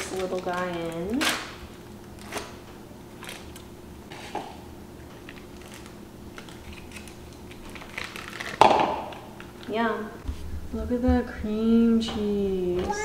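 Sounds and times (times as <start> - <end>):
foil wrapper crinkling: 0.0 - 4.2, 5.2 - 9.7
low steady hum: 0.0 - 13.0.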